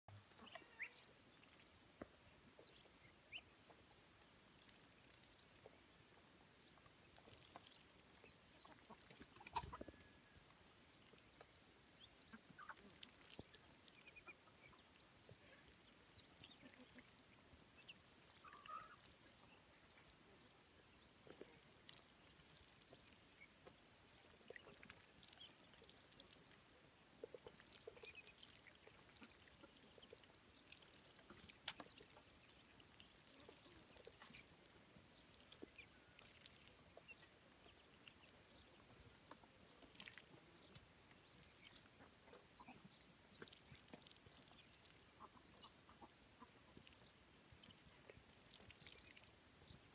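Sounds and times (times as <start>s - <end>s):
ducks and chickens calling: 8.6s - 10.1s, 17.8s - 19.2s, 44.8s - 47.0s.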